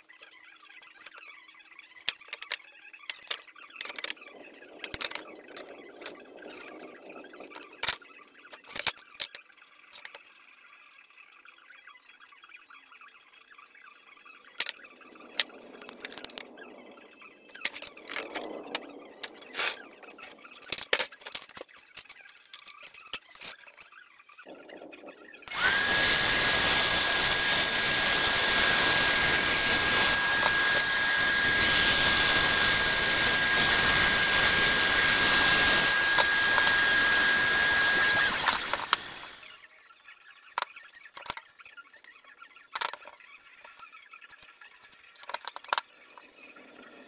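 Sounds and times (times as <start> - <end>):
band saw whining: 24.8 - 39.6
band saw cutting plywood: 25.4 - 39.5.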